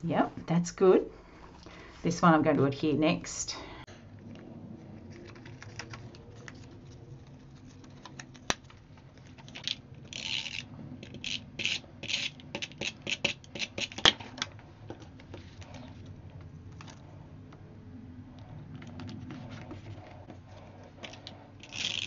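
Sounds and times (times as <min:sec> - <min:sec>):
paper and card handled: 0:05.0 - 0:10.6, 0:18.8 - 0:22.0.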